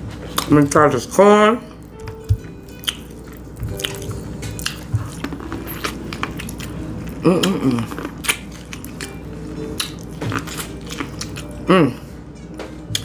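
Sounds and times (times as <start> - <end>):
chewing corn on the cob: 2.1 - 11.7
person humming: 7.2 - 8.0, 11.6 - 12.2.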